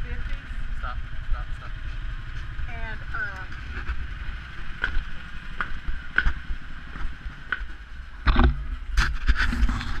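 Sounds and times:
steady low rumble: 0:00.0 - 0:10.0
hand rubbing against microphone: 0:09.0 - 0:10.0.

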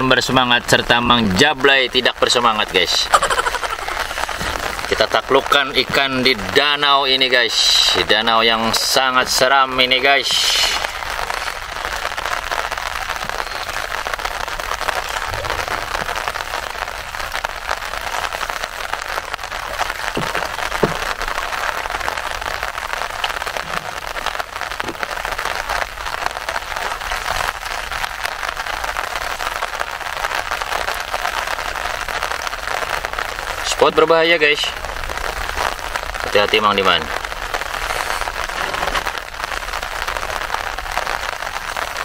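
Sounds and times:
rain falling on a lake: 0:00.0 - 0:42.0
faint knocks: 0:20.1 - 0:21.2.

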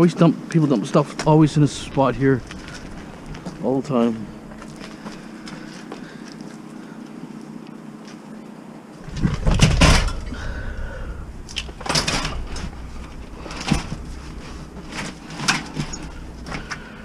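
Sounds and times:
bicycles clattering and knocking: 0:00.6 - 0:03.7, 0:09.0 - 0:17.0.

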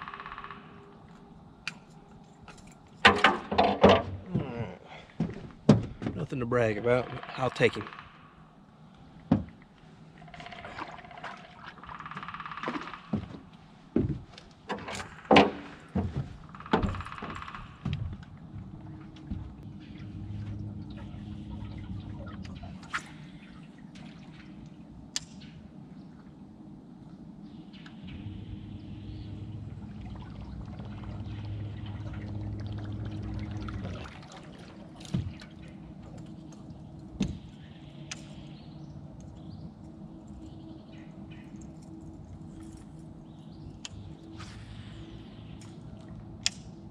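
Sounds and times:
water churning: 0:09.5 - 0:13.2, 0:14.7 - 0:26.5, 0:28.1 - 0:46.9.

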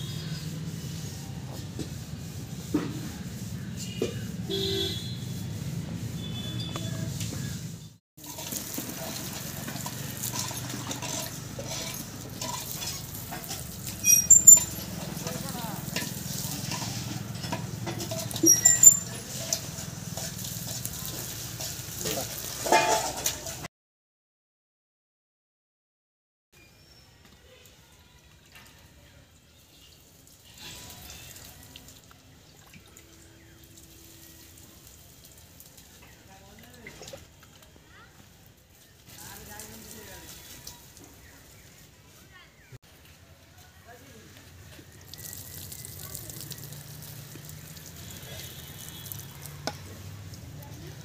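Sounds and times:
water sloshing in a metal bucket: 0:08.2 - 0:23.6, 0:29.7 - 0:42.0.

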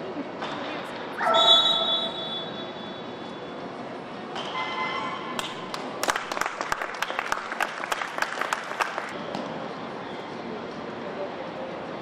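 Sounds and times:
people clapping: 0:05.4 - 0:09.2.

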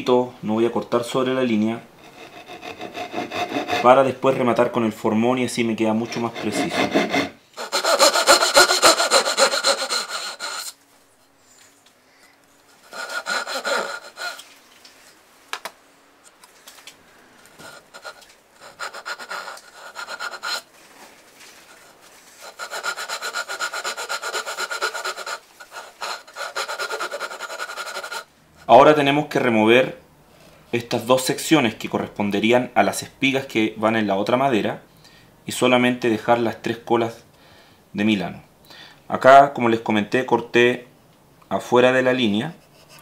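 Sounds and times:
hand saw cutting wood: 0:02.0 - 0:04.0, 0:06.0 - 0:10.8, 0:12.8 - 0:14.4, 0:17.6 - 0:20.7, 0:21.7 - 0:28.3.

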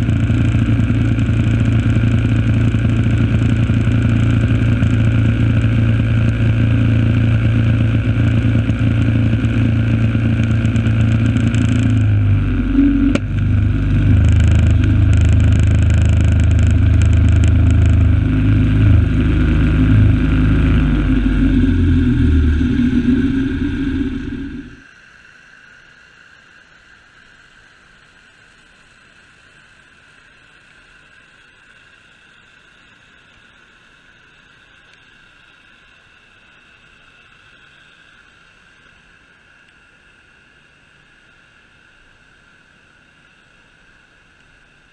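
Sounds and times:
engine running under load: 0:00.0 - 0:24.8.

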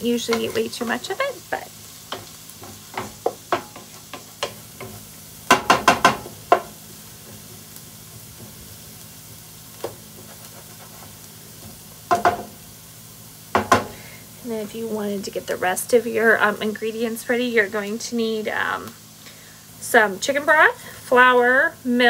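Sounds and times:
quiet oil sizzle: 0:00.0 - 0:22.0
spoon knocking and scraping pan: 0:00.1 - 0:01.2, 0:02.0 - 0:07.5, 0:09.8 - 0:12.6, 0:13.5 - 0:14.0.

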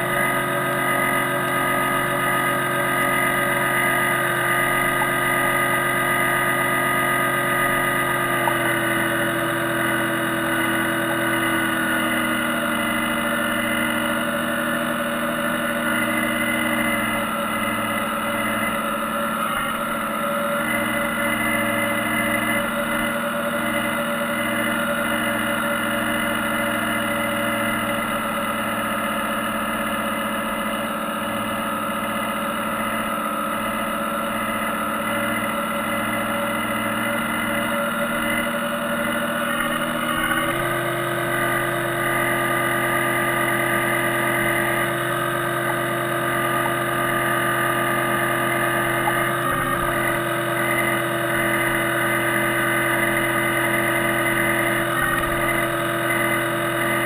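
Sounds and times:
electric motor humming: 0:34.4 - 0:57.0.

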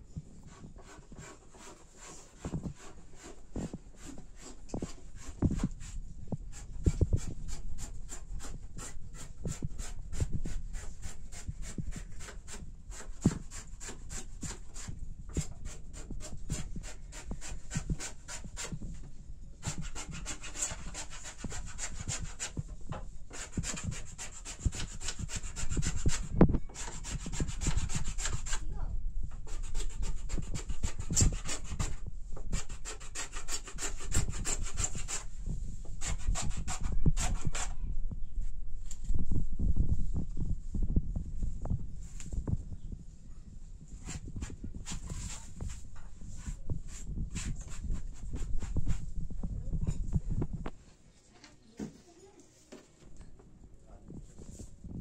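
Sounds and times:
hand tool rasping wood: 0:00.8 - 0:05.9, 0:06.5 - 0:18.7, 0:19.6 - 0:22.6, 0:23.3 - 0:28.6, 0:29.5 - 0:35.2, 0:36.0 - 0:37.7.

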